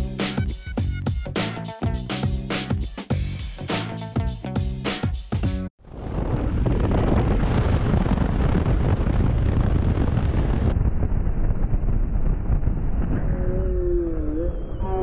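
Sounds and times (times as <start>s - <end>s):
music: 0.0s - 5.7s
wind buffeting microphone: 5.8s - 15.0s.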